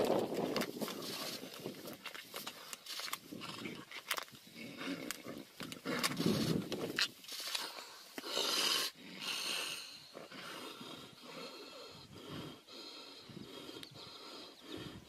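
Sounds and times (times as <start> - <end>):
tigers snarling: 0.2 - 15.0
tigers hissing: 7.3 - 15.0.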